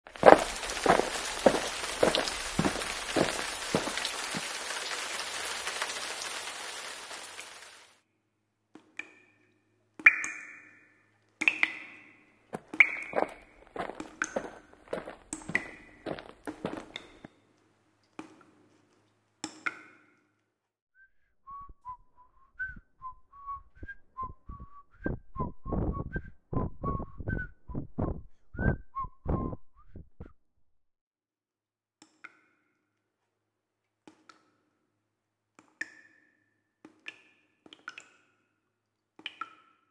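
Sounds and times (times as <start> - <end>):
whistled tune: 21.0 - 30.4.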